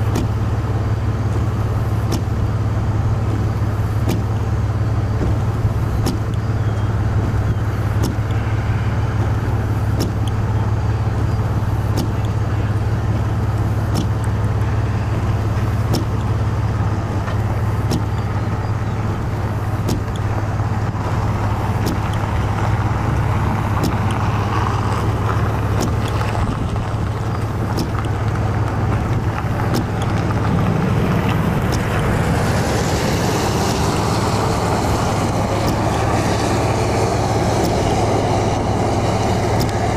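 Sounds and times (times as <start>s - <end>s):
car road rumble: 0.0s - 39.9s
faint regular ticks: 19.5s - 32.1s.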